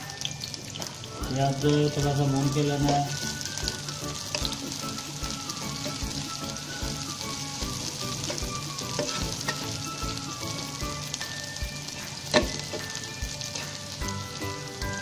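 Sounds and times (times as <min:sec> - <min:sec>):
onions sizzling in oil: 0:00.0 - 0:15.0
spatula stirring in pan: 0:02.8 - 0:14.0.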